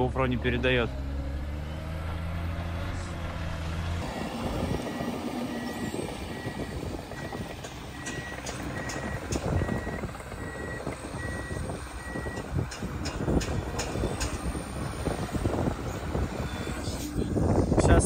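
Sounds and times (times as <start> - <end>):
snow groomer engine rumbling: 0.0 - 18.0
reversing alarm beeping: 4.0 - 12.5.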